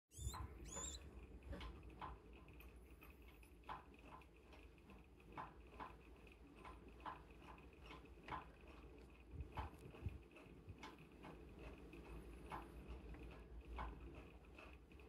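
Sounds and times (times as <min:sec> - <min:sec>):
rising squeak: 0:00.1 - 0:01.0
faint high hum: 0:00.1 - 0:01.6.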